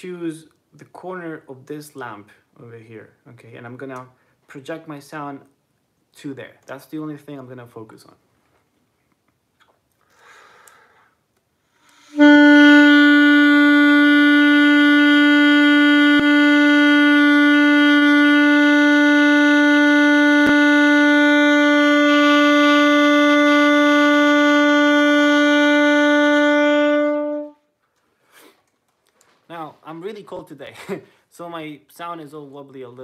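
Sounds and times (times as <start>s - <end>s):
intake of breath: 10.0s - 12.2s
alto saxophone long note: 12.1s - 27.7s.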